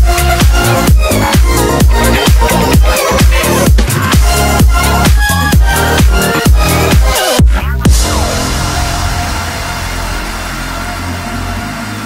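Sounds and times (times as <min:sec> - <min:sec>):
steady kick drum: 0:00.0 - 0:11.5
electronic dance music: 0:00.0 - 0:12.0.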